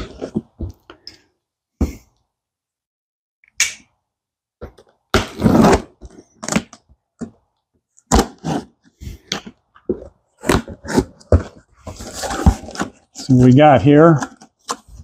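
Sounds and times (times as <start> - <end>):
cardboard tearing: 5.2 - 6.7
knocks and scrapes on cardboard: 9.9 - 15.0.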